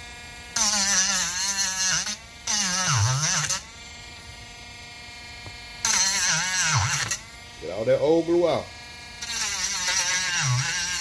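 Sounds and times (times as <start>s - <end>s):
rotary tool grinding: 0.0s - 11.0s.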